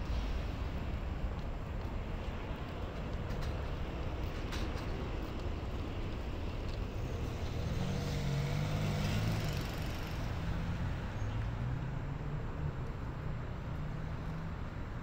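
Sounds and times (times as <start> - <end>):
city traffic: 0.0 - 15.0
car engine hum passing: 6.9 - 15.0.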